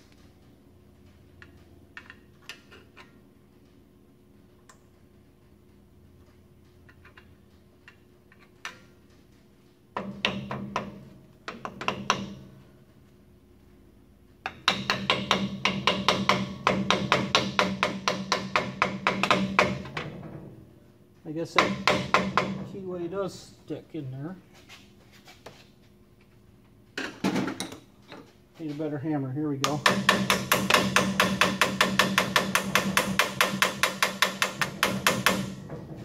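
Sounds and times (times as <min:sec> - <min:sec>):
hammer tapping metal: 0:09.9 - 0:12.6, 0:14.4 - 0:20.0, 0:21.4 - 0:22.8, 0:29.6 - 0:35.8.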